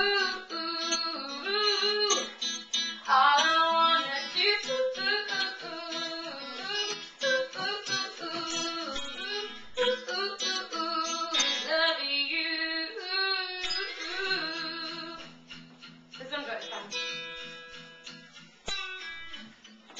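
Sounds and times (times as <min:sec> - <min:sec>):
woman singing: 0:00.0 - 0:15.4
guitar accompaniment: 0:00.0 - 0:19.9.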